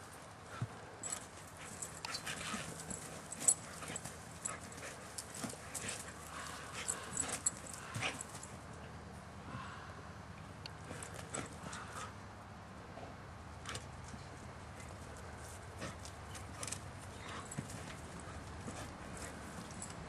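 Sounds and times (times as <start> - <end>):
paws scuffling on ground: 0.5 - 8.5, 14.0 - 20.0.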